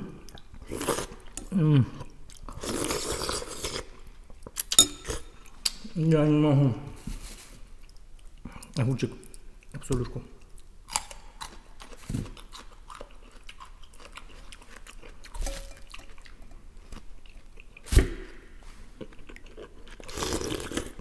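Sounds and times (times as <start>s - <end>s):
slurping soup: 0.6s - 1.5s, 2.5s - 4.0s
chewing and crunching cucumber: 7.8s - 21.0s.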